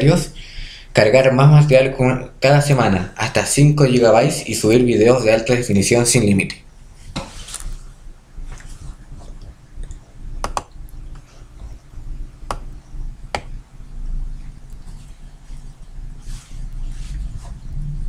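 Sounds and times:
low room noise: 0.0 - 18.0
computer mouse clicking: 9.8 - 11.3.

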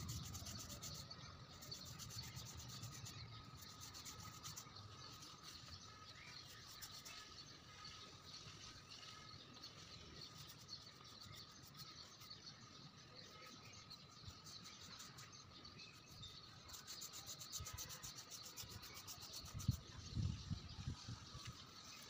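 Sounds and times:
paintbrush rubbing on wood: 0.0 - 7.4, 16.6 - 19.8.

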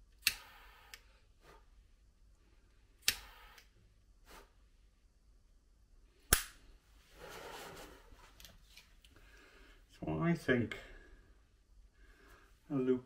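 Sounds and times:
lighter striking clicks: 0.2 - 1.0, 3.0 - 3.7
lighter gas hiss: 0.2 - 1.7, 3.0 - 4.6.

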